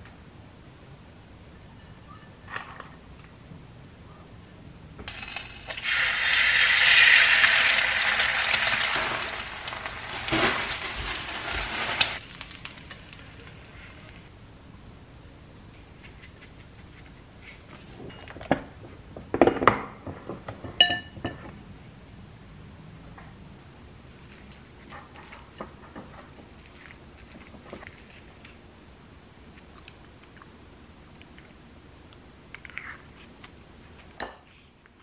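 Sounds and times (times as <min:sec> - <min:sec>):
egg sizzling in oil: 0:05.1 - 0:14.3.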